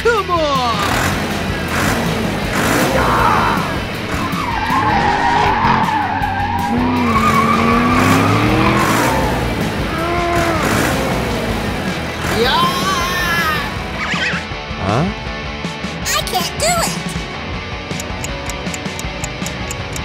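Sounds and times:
background music: 0:00.0 - 0:20.0
vehicle tires squealing: 0:02.6 - 0:11.4.

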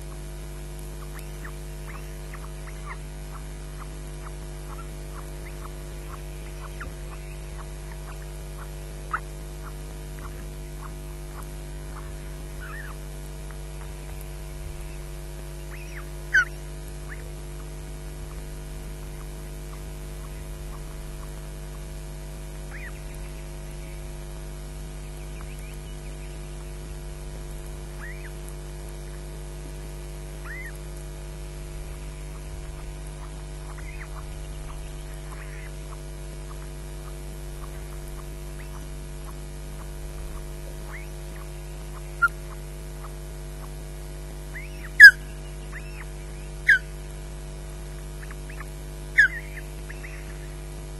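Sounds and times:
electrical mains hum: 0:00.0 - 0:50.9
osprey whistled chirps: 0:01.0 - 0:03.0, 0:04.7 - 0:09.2, 0:12.0 - 0:13.0, 0:15.6 - 0:17.2, 0:22.7 - 0:24.0, 0:28.0 - 0:28.3, 0:30.4 - 0:30.8, 0:33.2 - 0:35.7, 0:38.6 - 0:39.4, 0:40.8 - 0:43.1, 0:44.5 - 0:46.9, 0:48.2 - 0:50.6.

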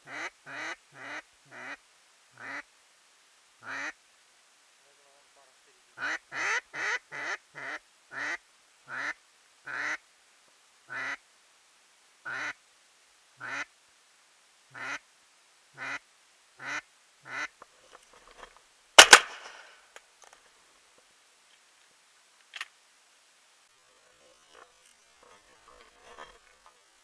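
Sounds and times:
duck call quacks: 0:00.0 - 0:01.8, 0:02.4 - 0:02.7, 0:03.6 - 0:04.0, 0:06.0 - 0:10.0, 0:10.9 - 0:11.2, 0:12.2 - 0:12.6, 0:13.4 - 0:13.7, 0:14.7 - 0:15.0, 0:15.8 - 0:16.0, 0:16.6 - 0:17.5
shotgun shot: 0:19.0 - 0:19.8.

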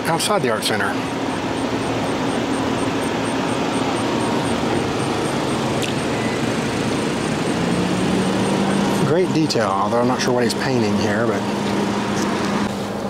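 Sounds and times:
low engine hum: 0:00.0 - 0:13.0
road traffic noise: 0:00.0 - 0:13.0.

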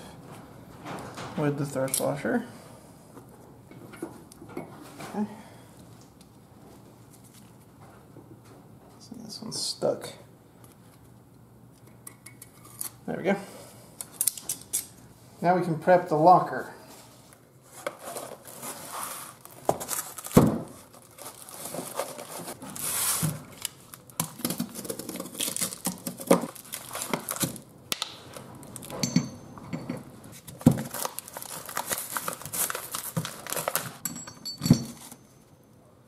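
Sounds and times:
paper and cardboard rustling: 0:17.0 - 0:27.7, 0:30.3 - 0:34.0.

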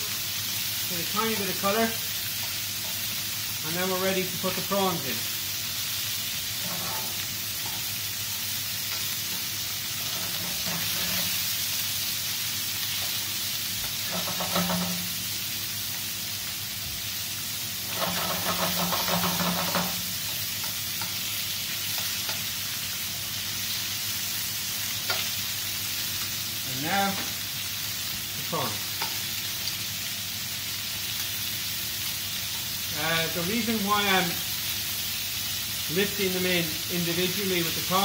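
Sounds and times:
meat sizzling in a frying pan: 0:00.0 - 0:38.0
metal tongs scraping in pan: 0:06.5 - 0:08.2, 0:08.9 - 0:11.5, 0:13.8 - 0:15.2, 0:17.8 - 0:20.0.

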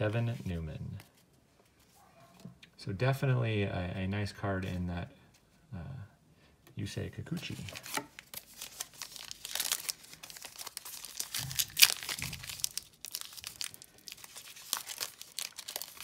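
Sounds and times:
foil wrapper crinkling and tearing: 0:07.6 - 0:16.0.

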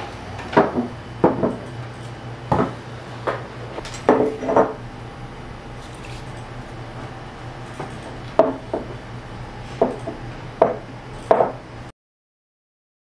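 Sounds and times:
items knocking on wooden table: 0:00.5 - 0:01.6, 0:02.5 - 0:03.5, 0:04.1 - 0:04.8, 0:08.4 - 0:09.0, 0:09.8 - 0:11.6.

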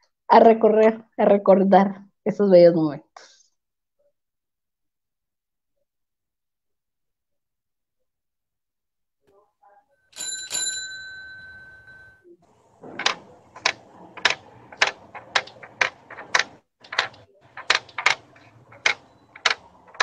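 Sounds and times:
bicycle bell ringing: 0:10.1 - 0:12.3
sharp clacks: 0:12.8 - 0:20.0.

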